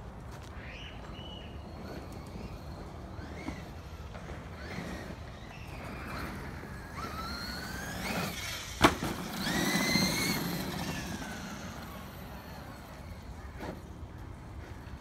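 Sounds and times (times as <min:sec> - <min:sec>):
electric motor whining: 0:01.6 - 0:13.6.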